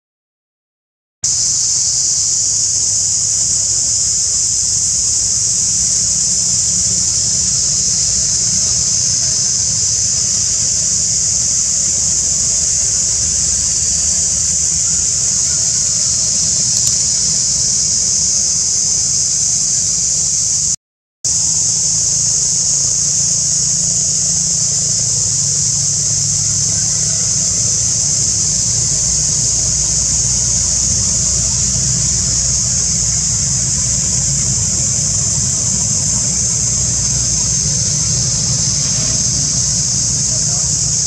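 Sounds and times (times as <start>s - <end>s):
cicadas droning: 1.2s - 41.0s
steady low rumble: 25.0s - 41.0s.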